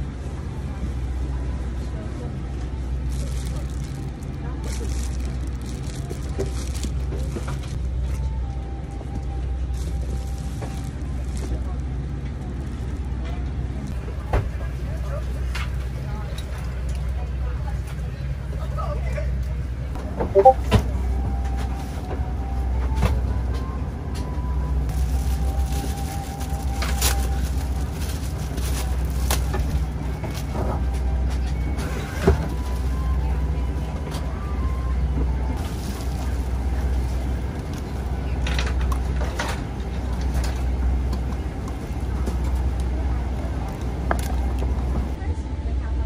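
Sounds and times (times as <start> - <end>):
airliner cabin ventilation rumble: 0.0 - 46.0
plastic wrapping crackling: 3.0 - 7.8, 9.6 - 13.0, 24.9 - 29.8.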